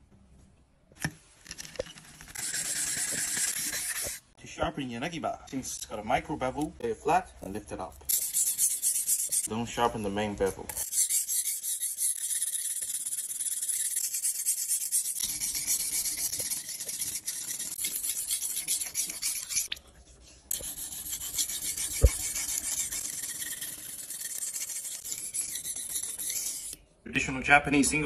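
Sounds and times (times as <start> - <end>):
knife scraping on whetstone: 1.6 - 4.3, 8.1 - 9.6, 10.5 - 19.7, 20.4 - 26.8.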